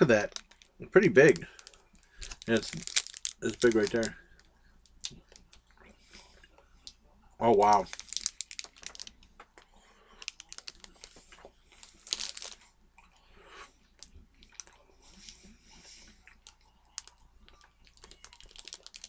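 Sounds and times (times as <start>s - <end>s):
wrapper rustling: 0.0s - 5.6s, 7.6s - 9.2s, 10.2s - 12.6s, 17.0s - 19.0s
chewing with mouth clicks: 1.4s - 19.0s.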